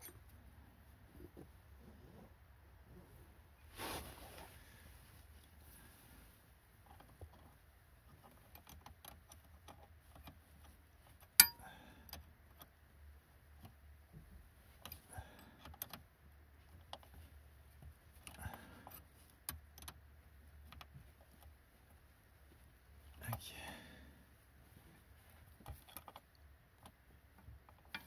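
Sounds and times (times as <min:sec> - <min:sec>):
small metallic clicks and taps: 0:06.8 - 0:12.8, 0:13.6 - 0:21.6, 0:25.4 - 0:28.0.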